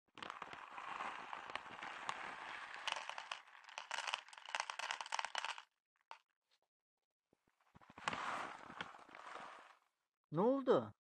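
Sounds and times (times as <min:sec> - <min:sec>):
kibble rattling into bowl: 0:00.2 - 0:05.6
plastic bag crinkling: 0:00.2 - 0:05.6.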